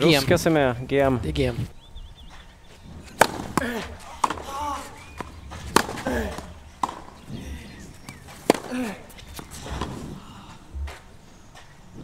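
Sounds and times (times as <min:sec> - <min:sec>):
racquet striking tennis ball: 0:03.1 - 0:07.2, 0:08.0 - 0:10.0.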